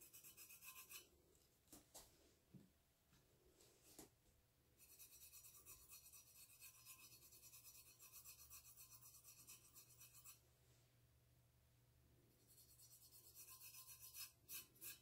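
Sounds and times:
fingertips rubbing textured metal: 0.0 - 1.1, 4.8 - 10.4, 12.4 - 15.0.

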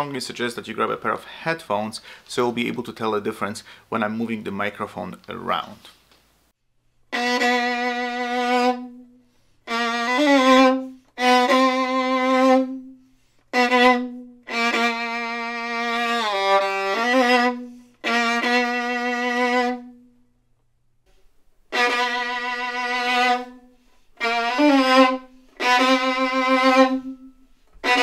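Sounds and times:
low bowed violin notes: 7.1 - 20.1, 21.7 - 28.0.

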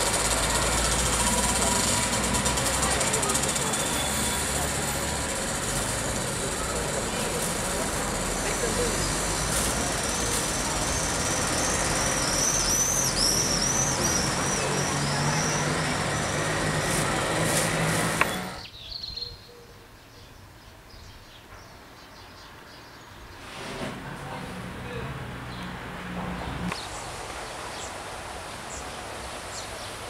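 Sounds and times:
low vehicle engine hum: 0.0 - 18.7
murmuring voices: 0.3 - 11.5
small birds chirping: 3.4 - 17.1, 18.1 - 23.4, 26.4 - 30.0.

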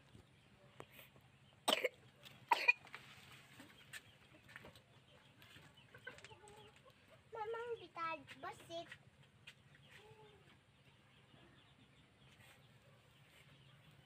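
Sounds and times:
chickens clucking: 0.0 - 14.0
harsh cough-like sounds: 1.7 - 2.9.

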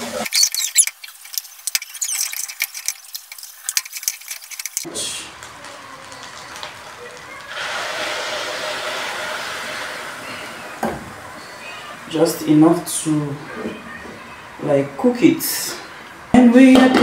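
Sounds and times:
rice frying in oil: 0.0 - 10.8
water hissing in hot pot: 0.0 - 11.2
spatula scraping pot: 0.1 - 4.9.

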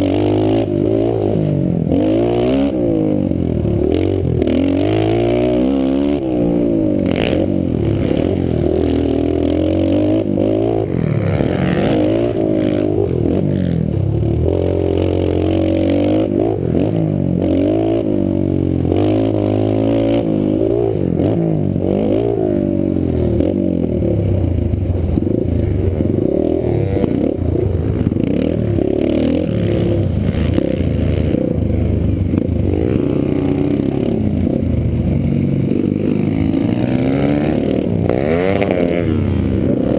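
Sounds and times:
small motorbike engine revving: 0.0 - 24.4, 35.8 - 39.9.

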